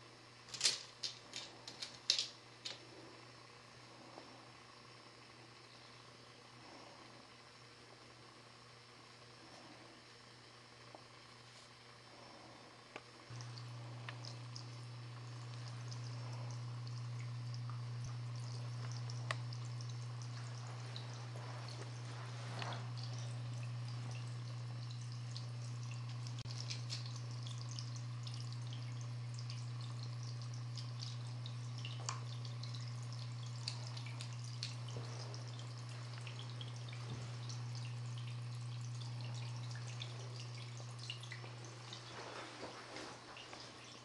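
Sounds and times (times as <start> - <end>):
steady low hum: 0.0 - 44.0
water dripping and trickling: 13.3 - 44.0.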